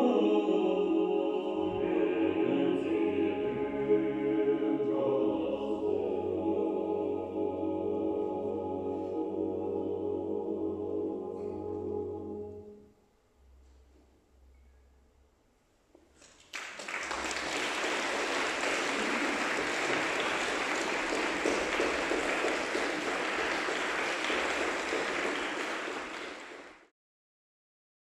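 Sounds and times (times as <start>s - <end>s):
audience applauding: 16.2s - 26.9s.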